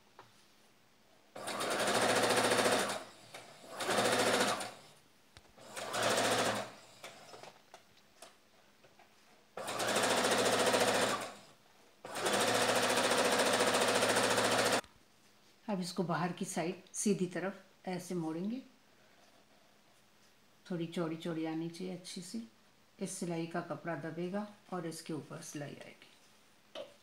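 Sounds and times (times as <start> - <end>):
sewing machine stitching: 1.4 - 4.8, 5.6 - 7.6, 9.6 - 11.5, 12.1 - 14.8.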